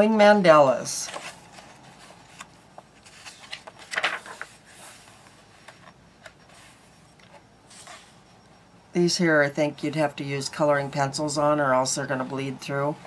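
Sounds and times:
paper pages rustling: 0.9 - 8.2
hands tapping and rubbing pages: 1.1 - 8.1.

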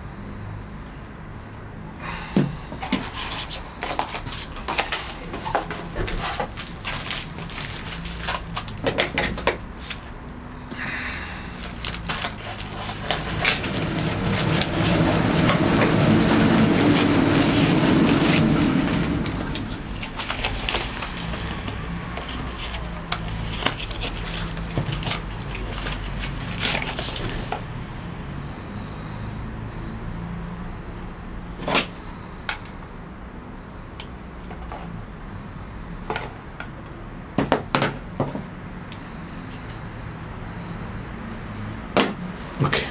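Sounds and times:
steady low hum: 0.0 - 37.4
plastic packaging crinkling: 2.8 - 10.1, 11.5 - 27.6.

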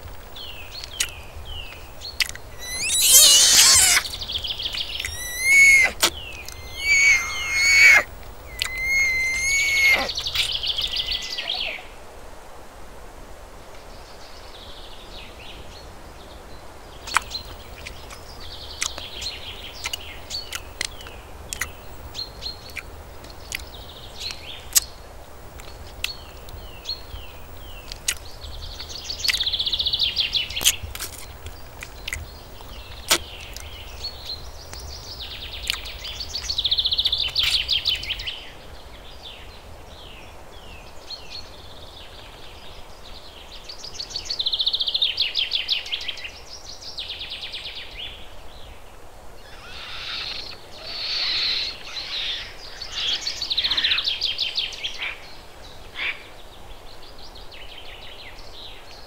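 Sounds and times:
soft chirps: 0.0 - 11.6
sharp clicks: 0.8 - 10.4
wild animal calls: 2.2 - 11.6.

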